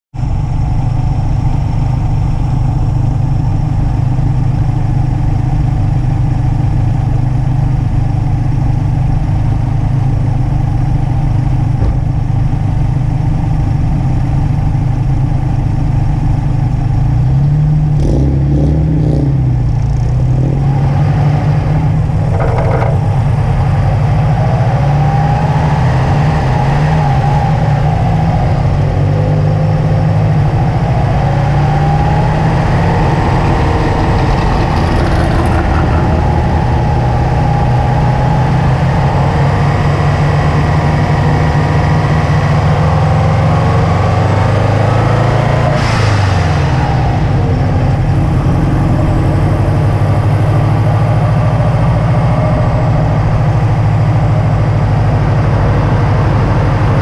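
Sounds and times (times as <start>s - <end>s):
car engine revving: 0.6s - 57.0s
short knocks: 22.3s - 23.1s.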